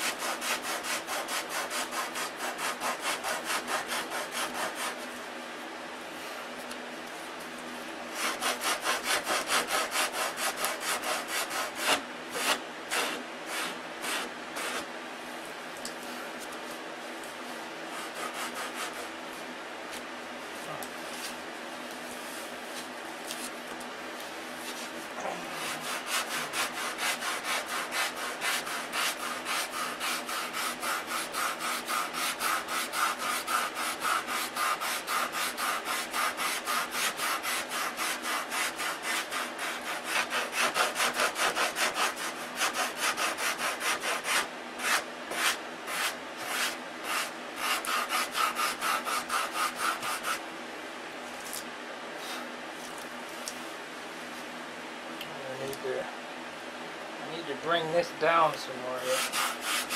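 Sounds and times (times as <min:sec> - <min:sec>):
sandpaper sanding wood: 0:00.0 - 0:05.1, 0:08.1 - 0:14.9, 0:17.9 - 0:19.2, 0:25.6 - 0:50.4, 0:59.0 - 0:59.9.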